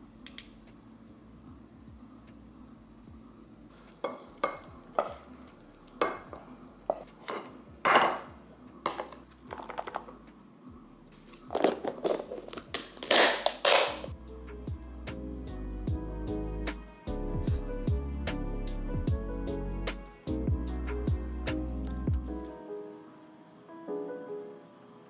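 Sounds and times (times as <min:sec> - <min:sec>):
wooden spatula scraping a pan: 0:06.9 - 0:07.5.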